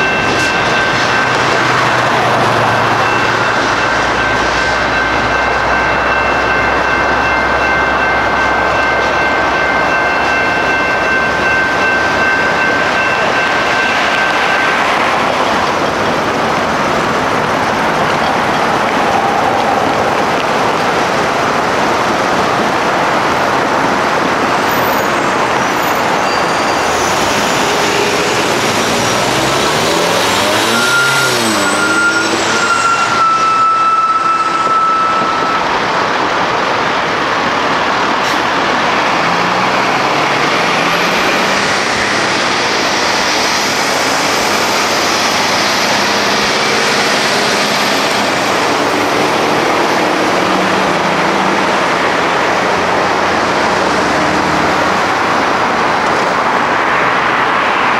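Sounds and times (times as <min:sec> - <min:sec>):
vehicle engines accelerating: 0:00.0 - 0:08.8, 0:10.9 - 0:33.7, 0:35.7 - 0:57.9
high steady squeal: 0:24.6 - 0:36.1.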